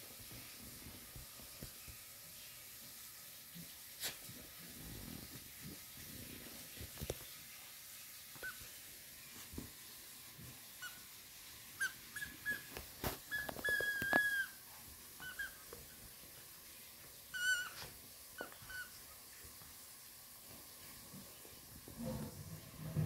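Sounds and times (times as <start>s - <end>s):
high squeaks of toy: 11.8s - 14.6s.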